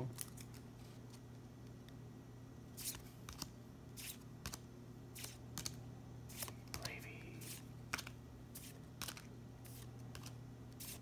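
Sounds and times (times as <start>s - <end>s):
faint low hum: 0.0s - 11.0s
cards swishing: 2.8s - 4.6s, 5.2s - 11.0s.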